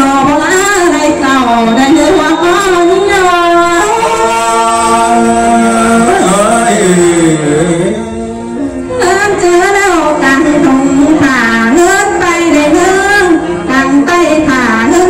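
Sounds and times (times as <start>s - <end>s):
woman singing into microphone: 0.0s - 5.3s, 9.0s - 15.0s
man singing: 4.0s - 8.2s.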